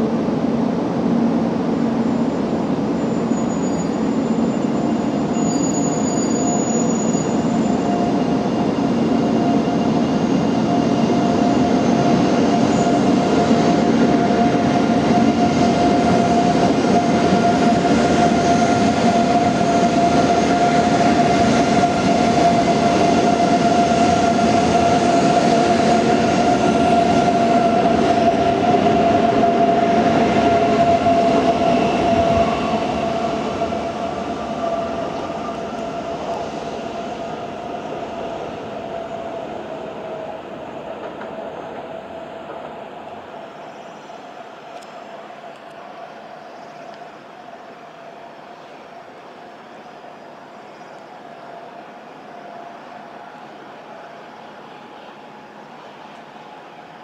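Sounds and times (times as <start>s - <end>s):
train high whine: 0.0s - 57.0s
train wheels rumbling on rails: 0.0s - 57.0s.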